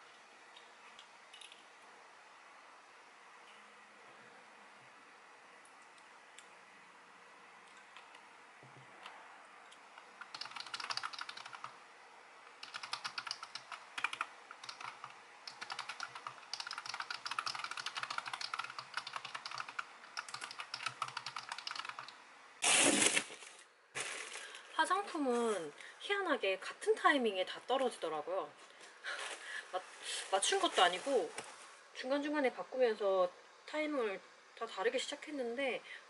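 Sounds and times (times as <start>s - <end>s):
fast typing on computer keyboard: 10.0s - 11.8s, 12.6s - 22.1s.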